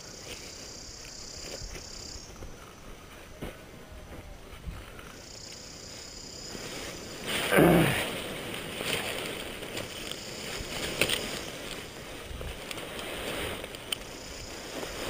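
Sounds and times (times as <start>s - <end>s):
nylon canopy rustling in brush: 0.0s - 15.0s.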